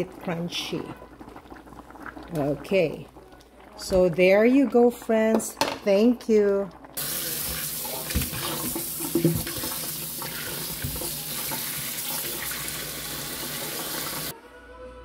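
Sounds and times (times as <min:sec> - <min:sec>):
tap water running into sink: 0:07.0 - 0:14.3.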